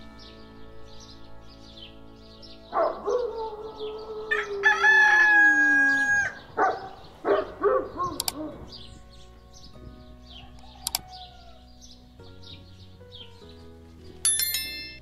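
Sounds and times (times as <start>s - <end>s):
small birds chirping: 0.0s - 15.0s
roosters crowing: 2.8s - 8.9s, 10.2s - 11.8s.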